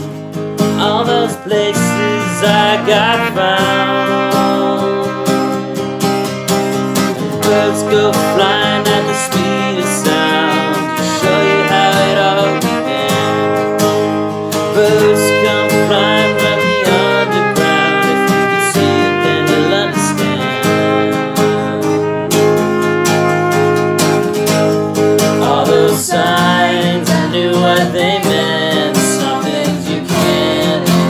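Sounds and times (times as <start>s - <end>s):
strummed acoustic guitar: 0.0s - 31.0s
muted trumpet melody: 1.0s - 24.9s.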